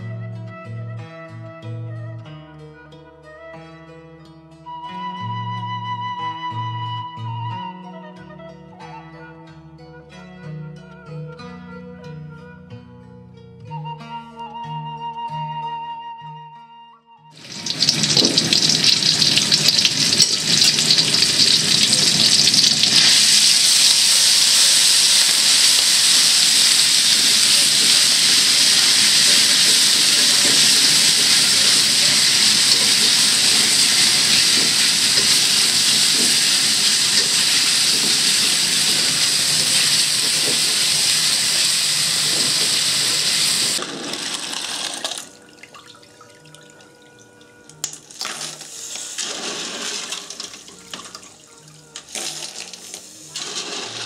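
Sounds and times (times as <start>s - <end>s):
paste sizzling in hot oil: 17.4s - 45.0s, 48.0s - 54.0s.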